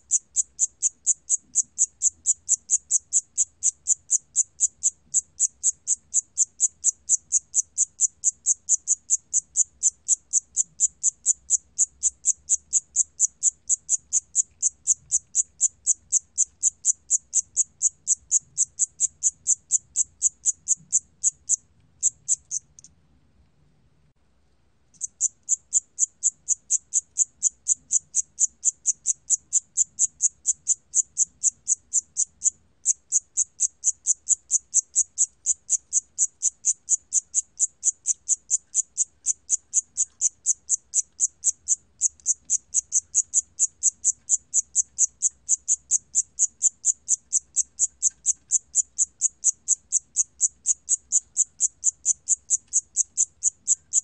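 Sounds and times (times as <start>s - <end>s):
cricket chirping: 0.0s - 22.9s, 24.9s - 54.0s.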